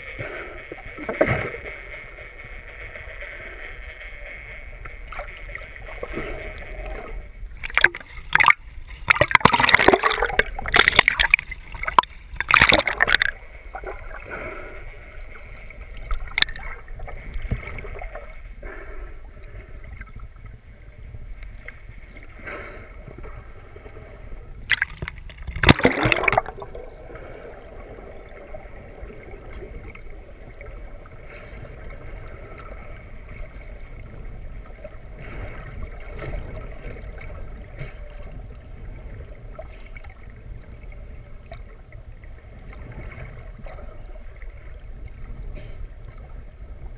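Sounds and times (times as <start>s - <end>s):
water splashing against camera: 0.0s - 14.7s, 15.3s - 18.8s, 24.6s - 32.7s
muffled underwater rush: 0.0s - 46.9s.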